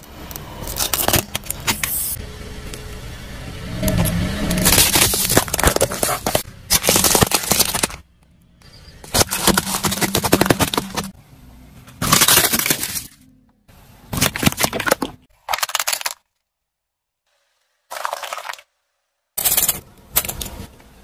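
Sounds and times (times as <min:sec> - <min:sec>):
tyre crushing plastic: 0:04.6 - 0:08.1, 0:09.0 - 0:11.2, 0:12.0 - 0:13.2, 0:14.1 - 0:16.3, 0:17.9 - 0:18.7.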